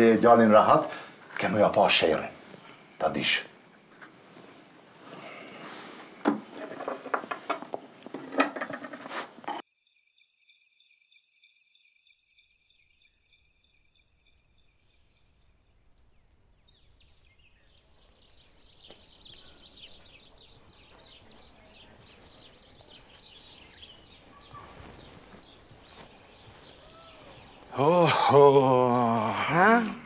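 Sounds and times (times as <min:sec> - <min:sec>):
birds calling: 0:00.0 - 0:09.6, 0:16.2 - 0:30.0
crickets chirping: 0:09.6 - 0:29.8.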